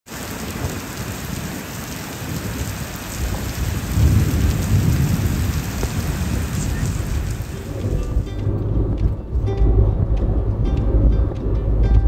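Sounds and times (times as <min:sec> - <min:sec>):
heavy rain pouring: 0:00.0 - 0:12.0
deep rumble: 0:03.2 - 0:12.0.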